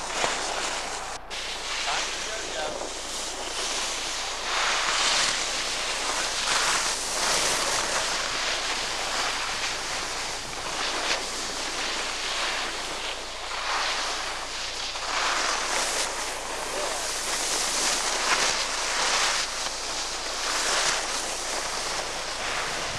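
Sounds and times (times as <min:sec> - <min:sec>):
skis scraping over snow: 0:00.0 - 0:22.9
wind buffeting microphone: 0:21.4 - 0:22.9.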